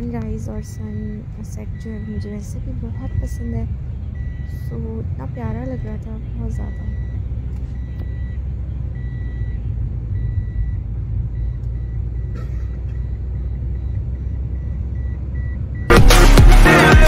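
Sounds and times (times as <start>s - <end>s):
road and engine rumble: 0.0s - 16.9s
dashboard warning chime beeping: 0.0s - 17.0s
loud electronic music: 15.9s - 17.0s.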